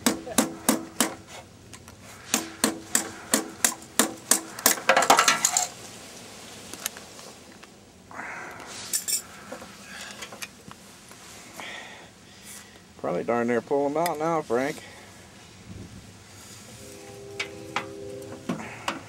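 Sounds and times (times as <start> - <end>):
hammer blows on metal: 2.2 - 5.0, 16.8 - 19.0.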